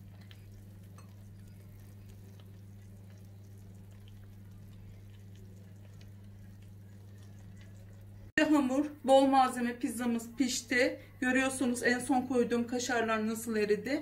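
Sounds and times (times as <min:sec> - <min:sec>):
pizza crackling on baking tray: 0:00.0 - 0:08.3
steady low hum: 0:00.0 - 0:11.8.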